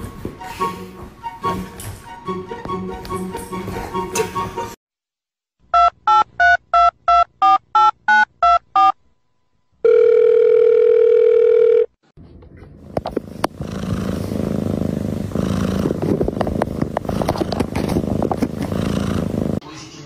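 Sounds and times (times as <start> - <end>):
background music: 0.0 - 4.8
long steady dial tone: 9.8 - 12.0.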